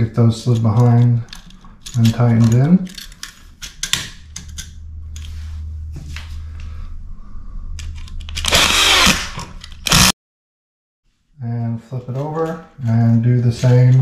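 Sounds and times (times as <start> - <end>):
cordless drill whirring: 8.4 - 10.1.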